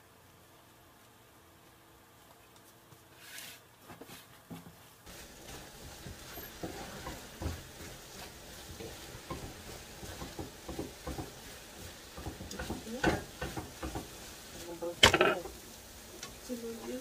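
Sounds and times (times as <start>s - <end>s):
eggs sizzling: 5.0s - 17.0s
wooden spoon scraping a pan: 5.1s - 17.0s
spoon knocking against pan: 6.6s - 14.2s.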